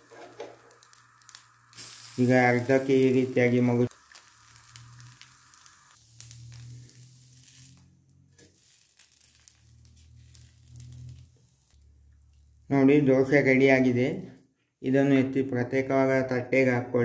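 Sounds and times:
dosa sizzling on a pan: 0.0 - 12.7.

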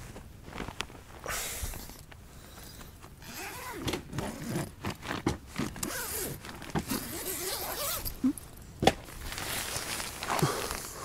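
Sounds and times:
zipper pulled in jerky tugs: 3.2 - 8.5.

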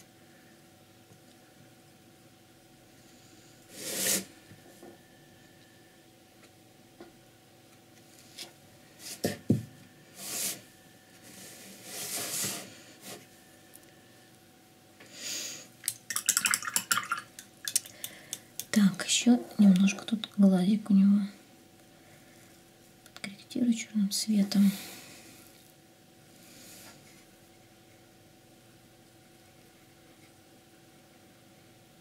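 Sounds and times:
box knocking on table: 9.5 - 9.7.

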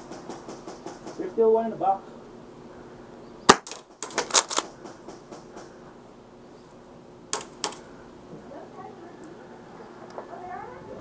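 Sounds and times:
airsoft guns firing: 3.5 - 5.0.

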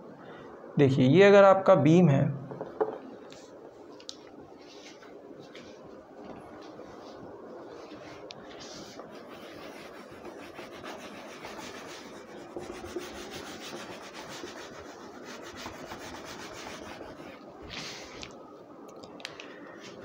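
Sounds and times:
cloth wiping a whiteboard: 6.6 - 18.3.

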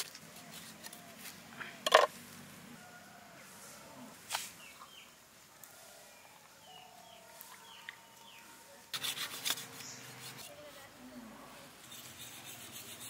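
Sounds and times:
birds chirping faintly: 3.8 - 12.8.

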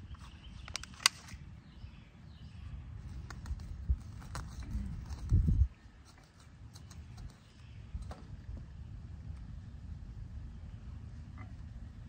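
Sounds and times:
scoop scraping and tapping soil: 3.0 - 8.3.

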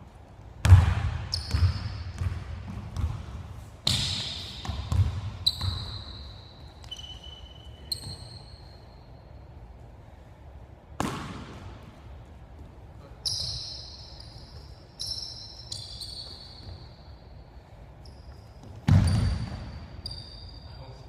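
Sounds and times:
basketball bouncing on gym floor: 0.6 - 7.2, 7.8 - 8.8, 11.0 - 17.1, 18.2 - 20.4
sneaker squeaks on court: 0.6 - 9.2, 13.2 - 17.3, 18.0 - 20.8.

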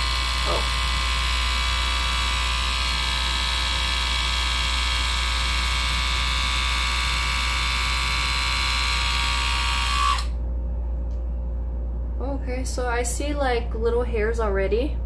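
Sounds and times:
small electric motor buzzing whine: 0.0 - 10.4.

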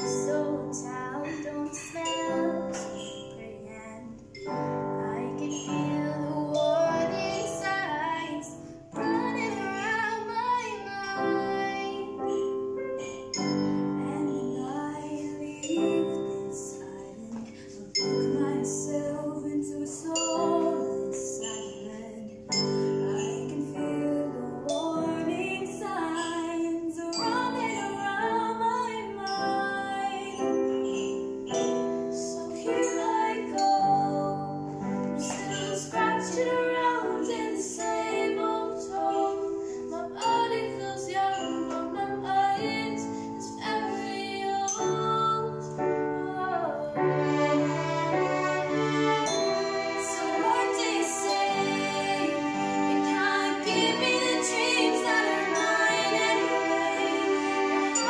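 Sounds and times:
instrumental accompaniment: 0.0 - 58.0
girls' choir singing in harmony: 46.0 - 58.0.

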